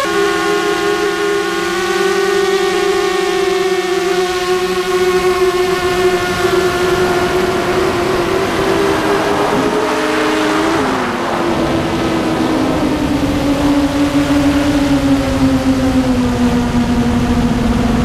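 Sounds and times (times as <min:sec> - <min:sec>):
model plane motor and propeller: 0:00.0 - 0:10.3, 0:11.8 - 0:18.0
rushing air: 0:06.2 - 0:13.4.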